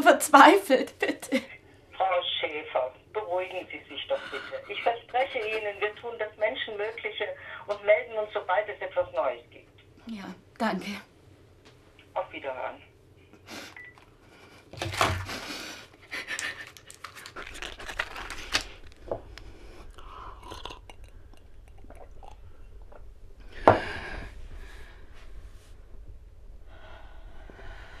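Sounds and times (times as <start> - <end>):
woman breathing heavily: 18.6 - 21.6, 23.4 - 25.7, 26.6 - 28.0.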